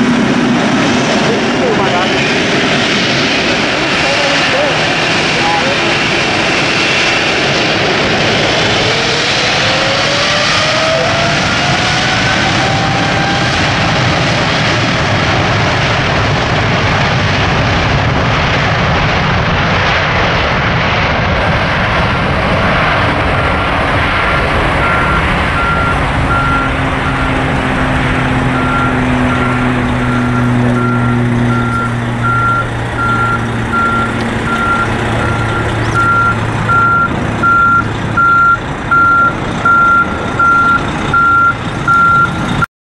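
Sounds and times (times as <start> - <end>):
jet engine roar: 0.0 - 42.7
reversing alarm beeps: 24.8 - 27.4, 28.5 - 42.4.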